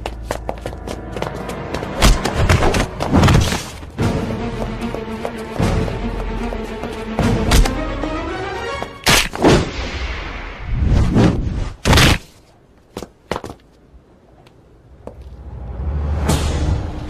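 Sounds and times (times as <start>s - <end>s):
music: 0.0s - 9.1s
whooshes: 9.3s - 11.8s.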